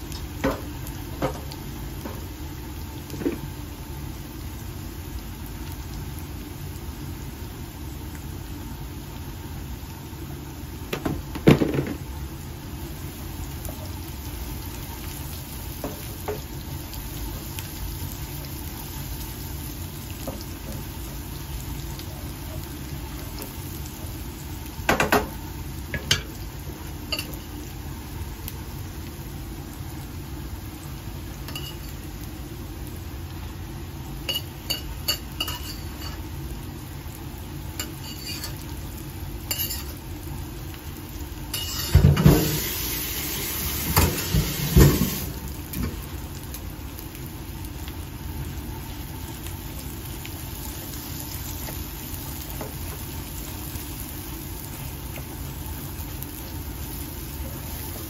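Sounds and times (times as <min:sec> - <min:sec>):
food sizzling in a pan: 0:00.0 - 0:58.0
utensils scraping a pan: 0:34.3 - 0:36.2, 0:37.9 - 0:38.6, 0:39.5 - 0:40.0, 0:41.6 - 0:42.0.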